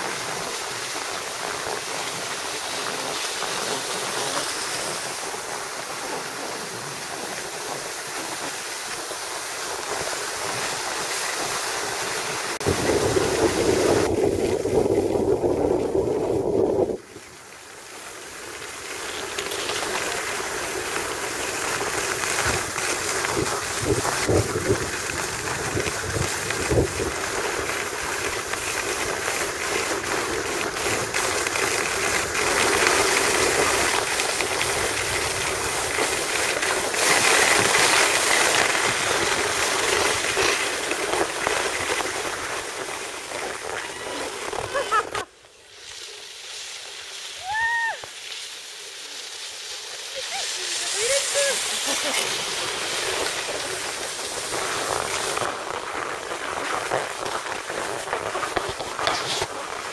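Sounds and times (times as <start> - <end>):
wind on microphone: 12.5 - 17.3, 22.4 - 29.0.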